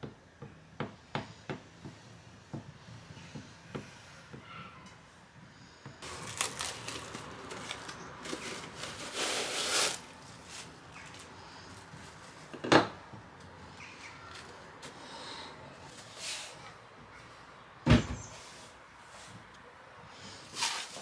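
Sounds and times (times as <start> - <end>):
cling film crackling rustle: 6.0 - 11.4.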